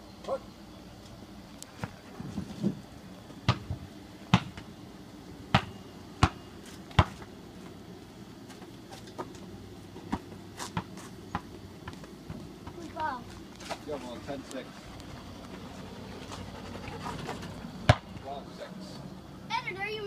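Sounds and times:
basketball bouncing on asphalt: 0:03.4 - 0:04.7, 0:05.5 - 0:07.7, 0:08.5 - 0:13.4, 0:17.8 - 0:18.2.

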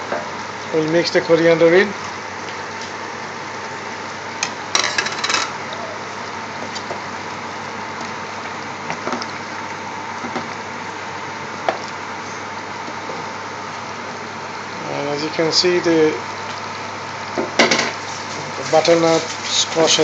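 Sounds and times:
curry bubbling in pot: 0:05.5 - 0:20.0.

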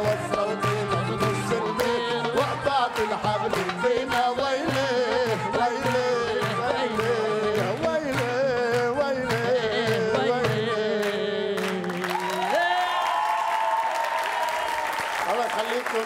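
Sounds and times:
hand percussion drumming: 0:00.0 - 0:11.0
man and woman singing duet: 0:00.0 - 0:12.9.

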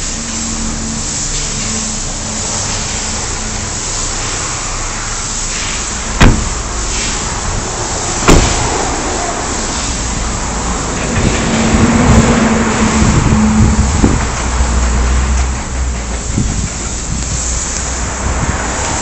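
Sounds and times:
car door slamming shut: 0:06.1 - 0:07.1, 0:08.2 - 0:09.0.

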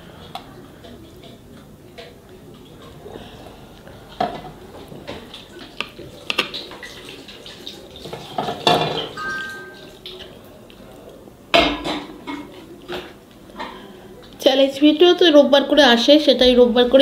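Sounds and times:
short ringing tone: 0:09.2 - 0:09.9.

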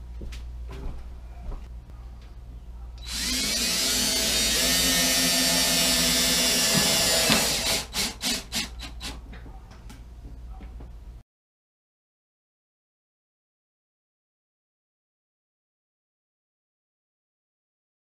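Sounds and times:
cordless drill driving screw into metal: 0:03.0 - 0:09.2.

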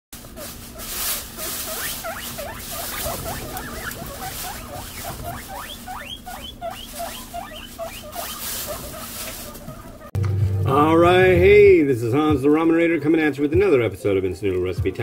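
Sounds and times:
guinea pigs squealing: 0:00.2 - 0:10.2.

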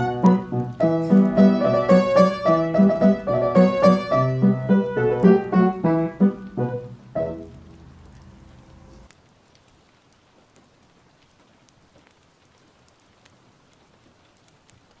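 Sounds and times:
keyboard chord: 0:00.0 - 0:07.8
soft hiss with small clicks: 0:00.0 - 0:15.0.

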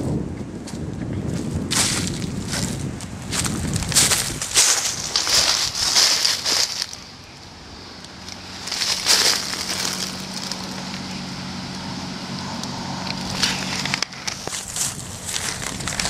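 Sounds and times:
low hum: 0:00.0 - 0:16.0
footsteps crunching on dry leaves: 0:00.5 - 0:07.4, 0:08.3 - 0:11.3, 0:13.1 - 0:16.0.

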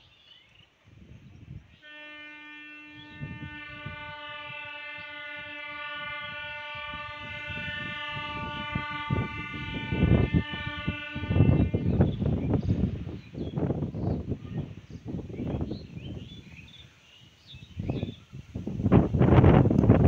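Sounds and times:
locomotive horn: 0:01.7 - 0:13.1
train rumble: 0:03.1 - 0:17.0.

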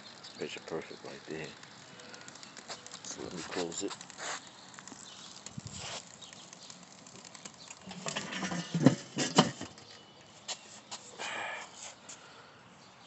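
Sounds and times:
metal grill lid clanking: 0:07.9 - 0:09.8.

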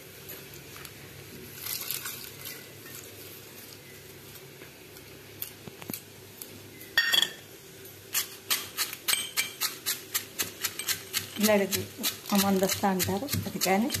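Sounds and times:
metal pestle pounding in mortar: 0:10.8 - 0:14.0.

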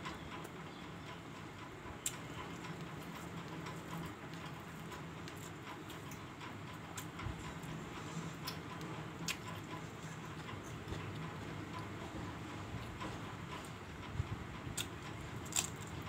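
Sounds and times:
fingers mixing rice on plate: 0:02.0 - 0:13.8
chewing: 0:08.3 - 0:11.3, 0:14.8 - 0:16.0.

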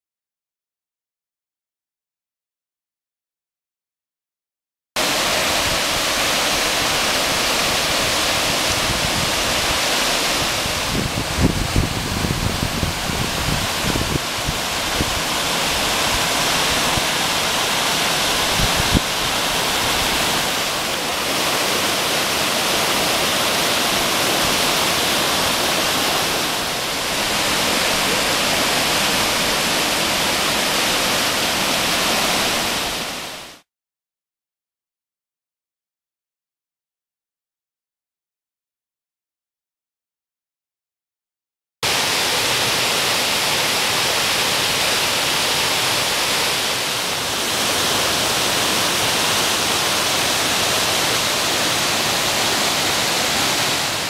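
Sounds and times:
waterfall rushing: 0:05.0 - 0:33.6, 0:41.8 - 0:54.0.

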